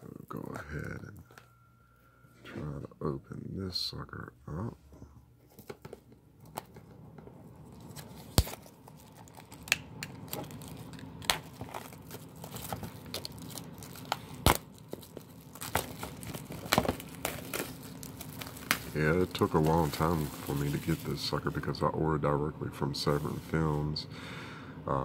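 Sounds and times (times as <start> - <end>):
plastic wrap crinkling: 7.7 - 21.8
plastic wrap snapping: 7.9 - 21.1.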